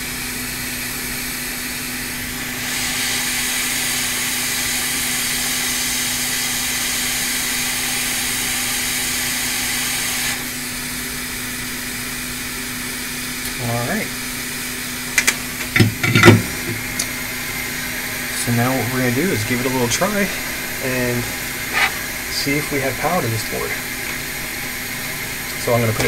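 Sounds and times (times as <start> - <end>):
low hum: 14.8 - 26.0.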